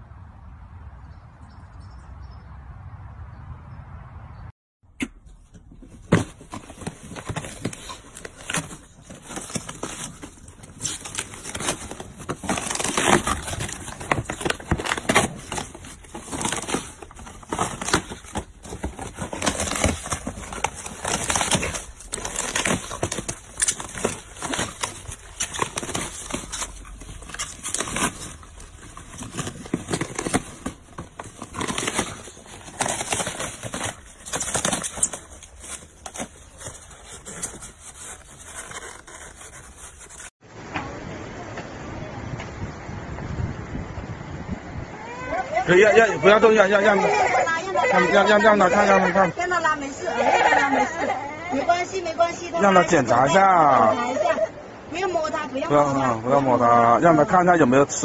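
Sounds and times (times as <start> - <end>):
dog tearing cardboard and foam: 5.4 - 40.4.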